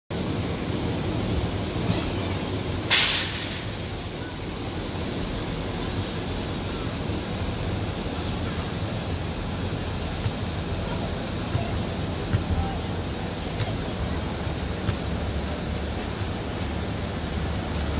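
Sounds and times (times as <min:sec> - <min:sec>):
brief loud hiss: 0:02.8 - 0:04.0.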